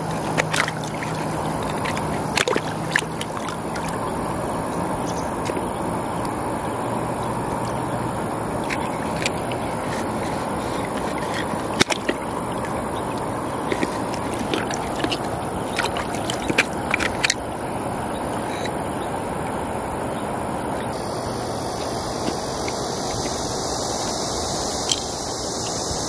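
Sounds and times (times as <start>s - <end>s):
river water rushing: 0.0s - 25.5s
knife scraping mussel shell: 8.6s - 12.4s.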